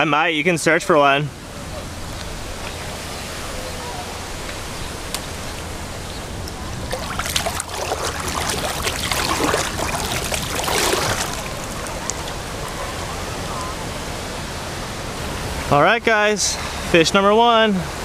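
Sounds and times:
surf washing: 1.3 - 15.8
fish rinsed in splashing water: 6.8 - 12.6.

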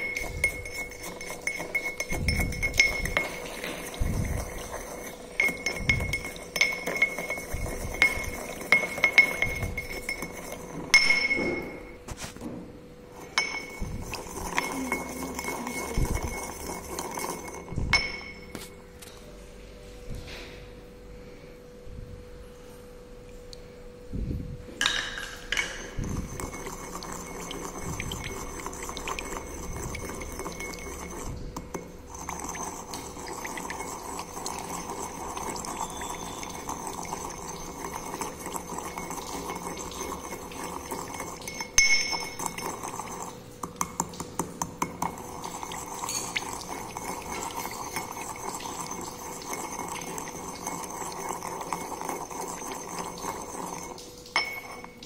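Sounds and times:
glass clinking: 0.0 - 12.0, 13.2 - 18.8, 24.8 - 55.0
pestle clinking on bowl: 0.0 - 12.0, 13.2 - 18.8, 24.8 - 55.0
water pouring from beaker: 0.0 - 12.0, 13.1 - 18.7, 24.8 - 55.0
pestle scraping in mortar: 0.0 - 12.5, 24.8 - 41.4.

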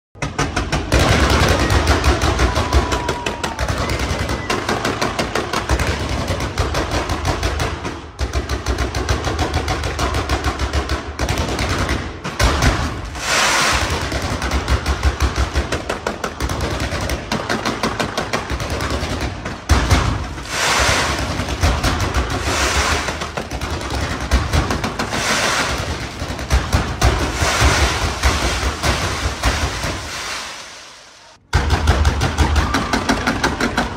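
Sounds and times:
fireworks bangs and crackles: 0.2 - 33.9
fireworks hissing: 13.0 - 14.2, 20.3 - 23.7, 24.4 - 31.4.

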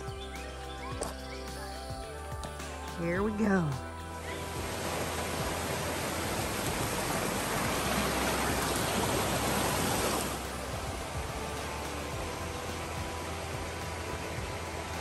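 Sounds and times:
stream rushing over rocks: 4.1 - 15.0.

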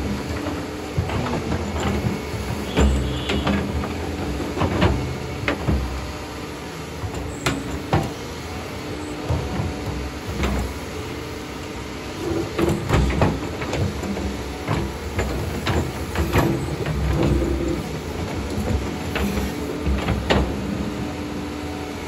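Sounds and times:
sharp knocks and clunks: 0.0 - 6.2, 7.0 - 8.3, 12.4 - 21.0
excavator diesel engine running: 0.0 - 22.0.

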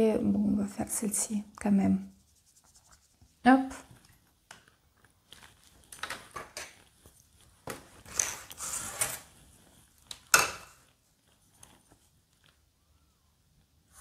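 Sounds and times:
brush scraping and rubbing: 2.0 - 4.1, 6.9 - 10.0.

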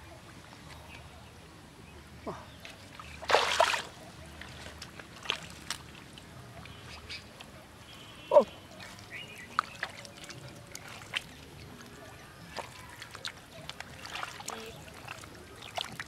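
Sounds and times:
mud squelches: 2.4 - 16.0
water splash: 3.0 - 4.0, 12.5 - 16.0.

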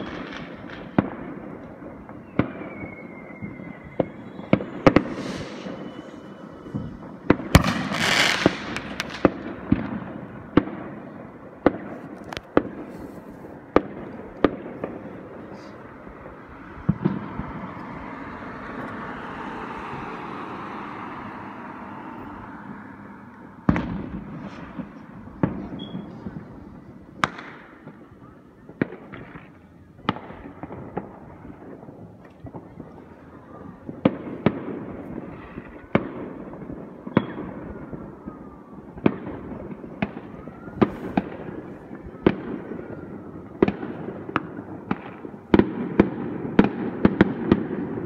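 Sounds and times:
fireworks bangs: 0.0 - 48.0
rushing noise: 2.8 - 9.2.

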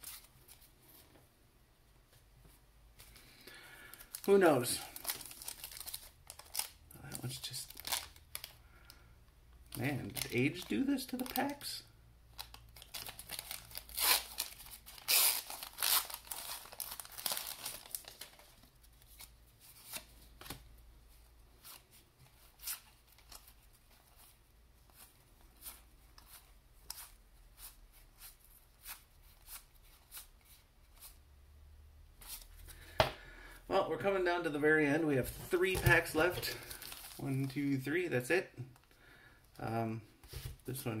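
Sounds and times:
paper wrapper tearing: 4.0 - 8.5, 9.7 - 11.7, 12.4 - 19.3, 36.3 - 37.7.

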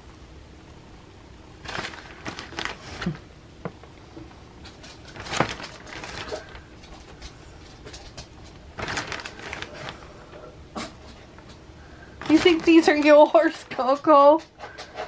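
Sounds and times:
cheese shreds rustling: 1.6 - 3.3, 4.6 - 10.4, 11.2 - 13.9
plastic bag crinkling: 1.6 - 3.8, 4.6 - 10.4, 11.3 - 14.2.

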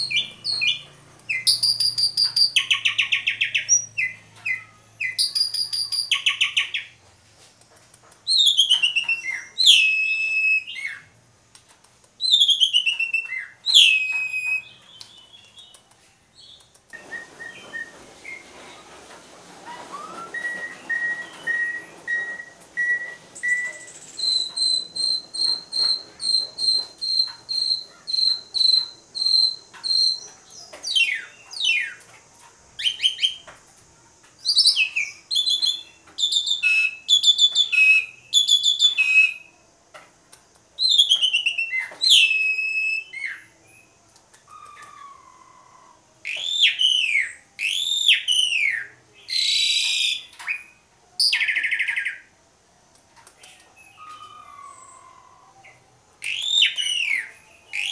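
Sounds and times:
starling whistled song: 0.0 - 7.0, 8.3 - 11.2, 12.2 - 15.8, 16.4 - 19.0, 19.6 - 32.0, 32.8 - 33.5, 34.4 - 39.5, 40.8 - 52.3, 53.4 - 57.9
harsh rasping bird calls: 23.4 - 32.0, 44.5 - 50.7, 53.4 - 57.9.

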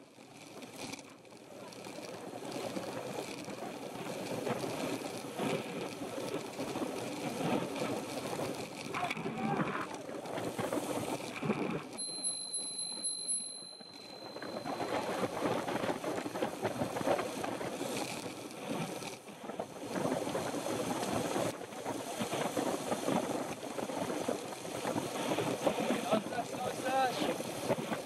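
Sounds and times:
tyre and road noise: 0.0 - 28.0
thin high electronic tone: 12.0 - 15.3.

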